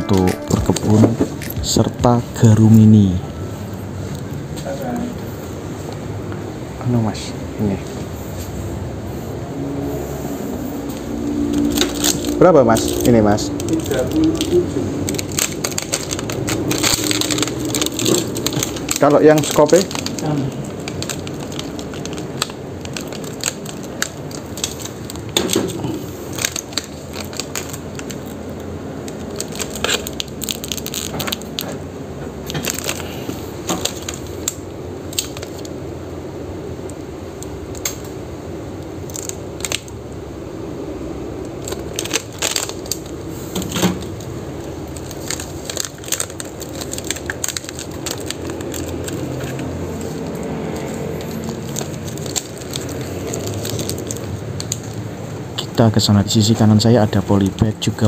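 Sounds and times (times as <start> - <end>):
low background noise: 0.0 - 58.0
plastic packaging crinkling: 11.3 - 31.8, 32.4 - 35.9, 38.8 - 40.2, 41.2 - 55.7.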